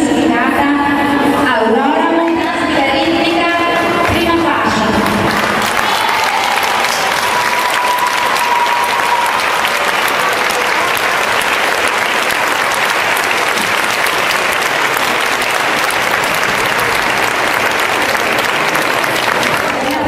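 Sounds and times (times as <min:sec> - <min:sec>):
audience applauding: 0:04.9 - 0:20.0.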